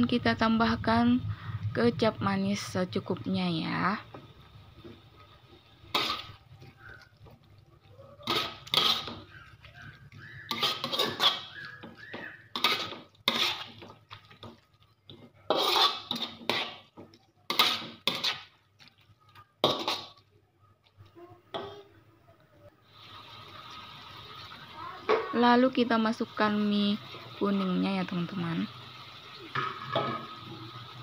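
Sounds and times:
spatula scraping a wok: 2.9s - 18.8s, 19.6s - 20.2s.

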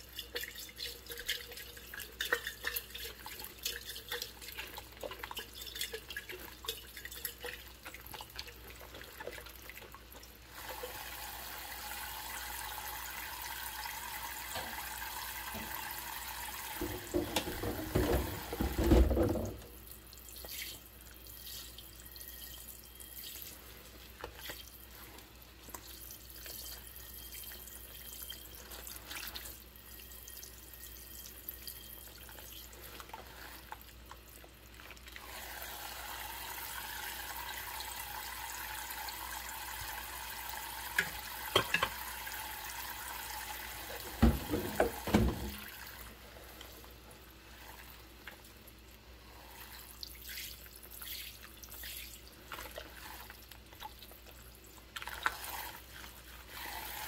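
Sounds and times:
water splashing in a sink: 0.0s - 57.0s
tap running: 14.5s - 16.0s, 16.6s - 19.7s, 44.0s - 45.7s.

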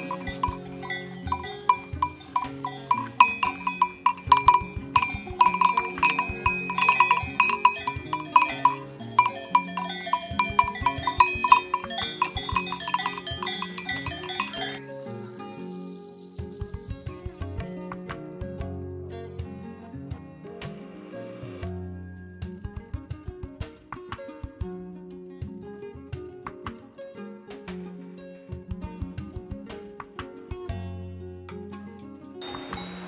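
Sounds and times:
cow bell clanking: 0.0s - 14.8s.

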